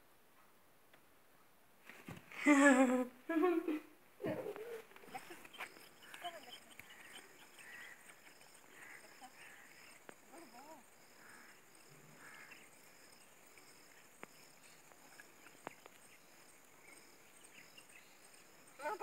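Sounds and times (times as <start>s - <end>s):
insects chirping: 4.2s - 19.0s
faint sharp clicks: 4.9s - 7.2s.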